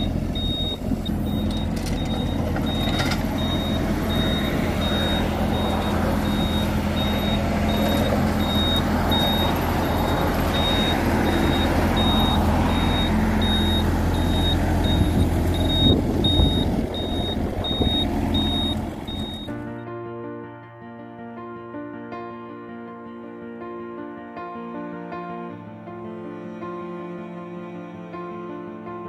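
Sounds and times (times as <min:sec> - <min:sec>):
high beeping travel alarm: 0:00.0 - 0:19.5
diesel engine running: 0:00.0 - 0:19.8
metal clanks: 0:01.3 - 0:03.7.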